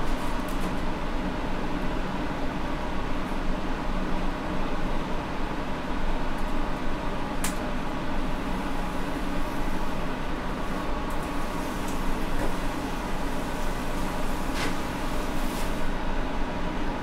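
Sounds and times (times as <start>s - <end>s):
hot air rushing from nozzle: 10.7s - 15.9s.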